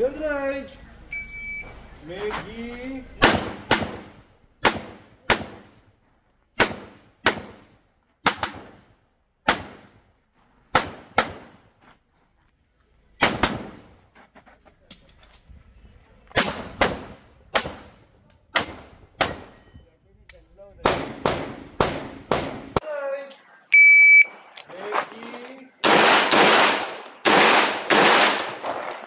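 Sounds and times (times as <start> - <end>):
pistol shots with ringing echo: 3.2 - 5.7, 16.3 - 19.8, 20.8 - 22.8, 25.8 - 29.0.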